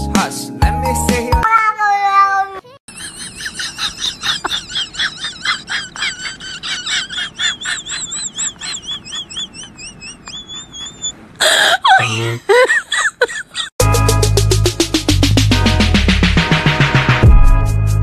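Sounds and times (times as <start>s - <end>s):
high-pitched chirping animal calls: 2.9s - 12.1s.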